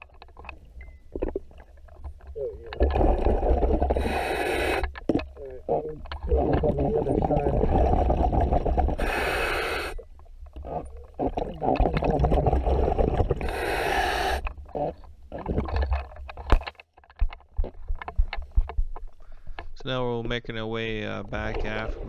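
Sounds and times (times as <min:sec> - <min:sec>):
bubbling exhaled air underwater: 0:02.5 - 0:04.8, 0:05.6 - 0:09.9, 0:10.6 - 0:15.8.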